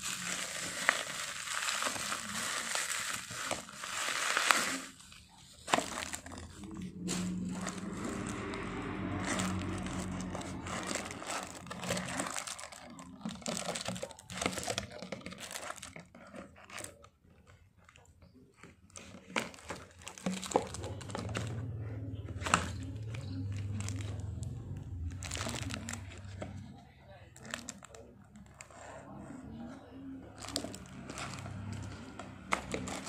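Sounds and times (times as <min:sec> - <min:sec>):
plastic wrap crinkling: 0:00.0 - 0:33.0
low hum: 0:05.1 - 0:12.7, 0:20.6 - 0:27.1.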